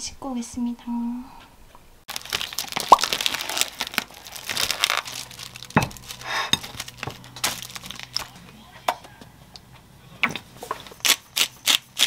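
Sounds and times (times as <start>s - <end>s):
plastic wrap crinkling and tearing: 2.1s - 8.4s.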